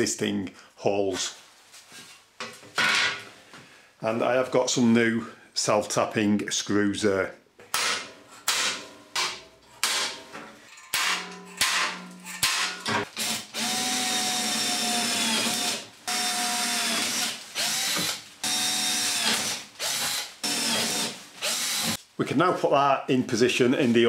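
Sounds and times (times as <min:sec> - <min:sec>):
cordless drill boring through steel: 0:13.2 - 0:22.0.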